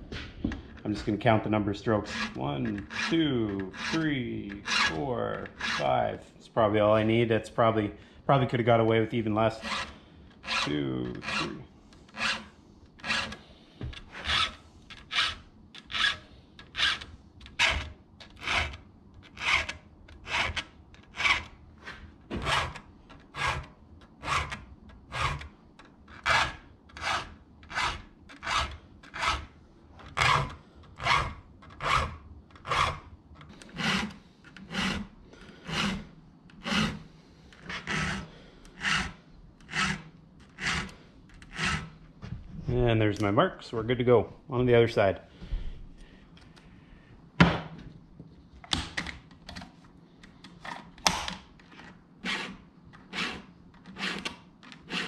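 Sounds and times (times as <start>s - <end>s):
file rasping on chainsaw chain: 2.0s - 6.0s, 9.5s - 13.4s, 14.1s - 21.5s, 22.4s - 25.5s, 26.2s - 29.5s, 30.1s - 42.0s, 52.2s - 55.0s.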